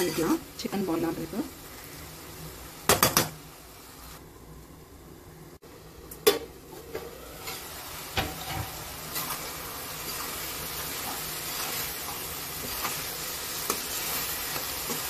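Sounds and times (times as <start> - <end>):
chicken sizzling in oil: 7.2 - 15.0.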